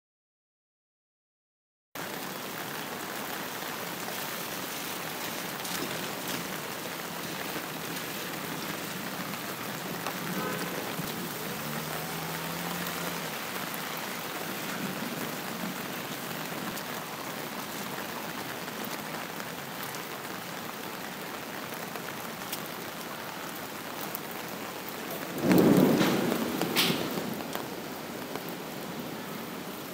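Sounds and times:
heavy rain: 0:02.0 - 0:29.9
loud thunderclap: 0:25.2 - 0:27.8.

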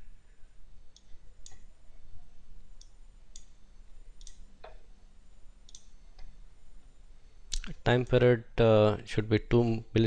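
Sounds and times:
faint low hum: 0:00.0 - 0:10.0
computer mouse clicking: 0:02.8 - 0:03.6, 0:04.2 - 0:04.8, 0:05.6 - 0:06.4.

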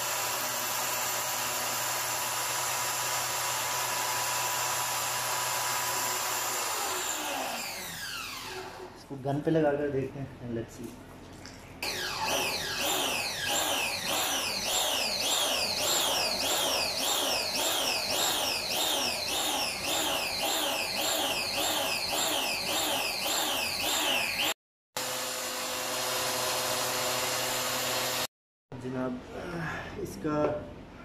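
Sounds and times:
pressure washer whine: 0:11.8 - 0:28.3.

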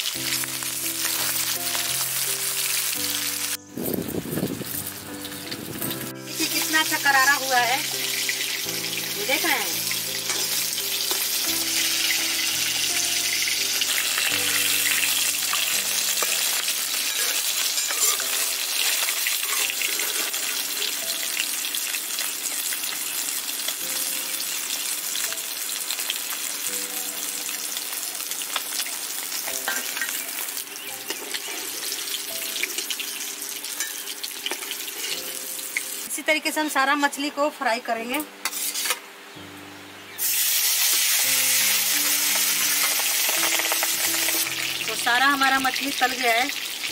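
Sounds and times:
fish frying in oil: 0:00.0 - 0:36.1, 0:40.2 - 0:46.9.

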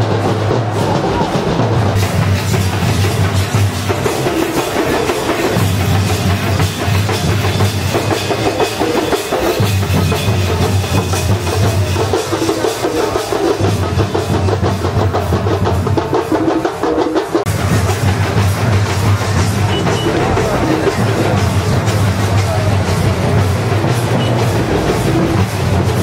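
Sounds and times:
heavy low beat: 0:00.0 - 0:09.0, 0:17.5 - 0:26.0
drums beating: 0:00.0 - 0:26.0
hand cymbals clashing: 0:01.8 - 0:15.7, 0:16.3 - 0:26.0.

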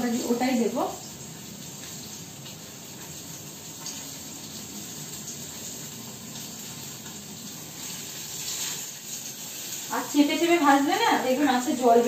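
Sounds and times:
fish frying in hot oil: 0:00.0 - 0:12.0.

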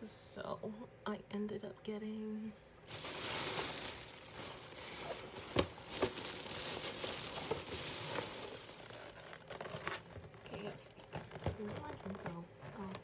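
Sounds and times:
plastic bag rustling and crinkling: 0:02.9 - 0:13.0.

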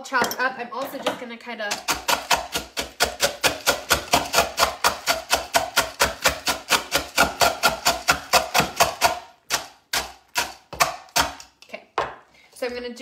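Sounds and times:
manual food chopper crunching: 0:01.8 - 0:10.6.

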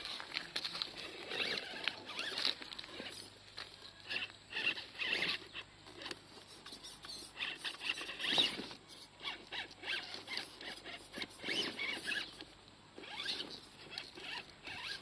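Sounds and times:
tyres scrabbling on rocks: 0:00.0 - 0:15.0
electric motor whining: 0:06.8 - 0:12.4.

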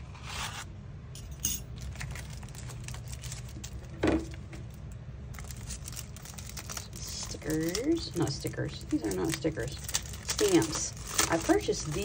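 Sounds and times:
steady low hum: 0:00.0 - 0:12.0
paper rustle: 0:01.9 - 0:04.4, 0:05.3 - 0:12.0.

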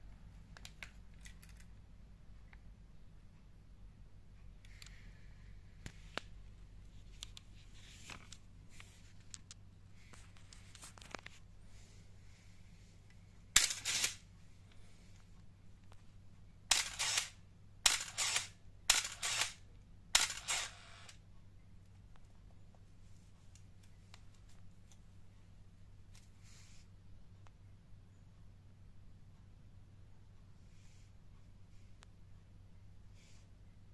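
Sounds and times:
camera motor drive whir: 0:13.6 - 0:14.2, 0:16.7 - 0:19.6, 0:20.2 - 0:21.1
camera shutter click: 0:13.6 - 0:14.2, 0:16.7 - 0:19.6, 0:20.2 - 0:21.1.

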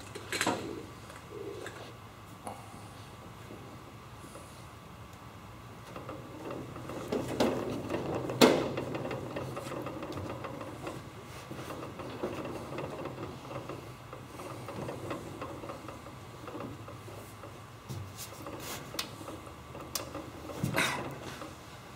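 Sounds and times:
body rubbing on aluminium: 0:06.0 - 0:21.7.

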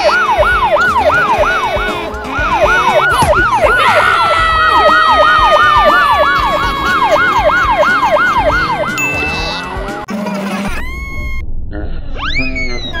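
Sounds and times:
police siren sweeping: 0:00.0 - 0:09.0.

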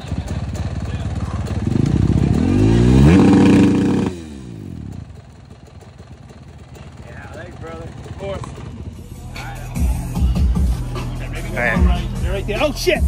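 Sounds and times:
dirt bike engine revving: 0:00.0 - 0:05.1.

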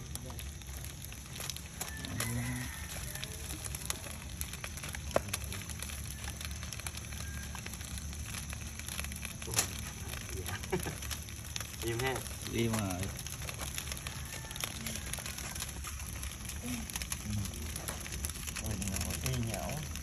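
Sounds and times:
fire crackling: 0:00.0 - 0:20.0
sharp fire pops: 0:00.0 - 0:20.0.

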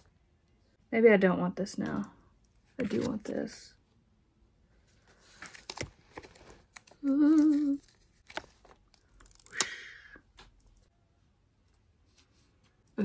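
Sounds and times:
woman humming: 0:07.0 - 0:07.8.

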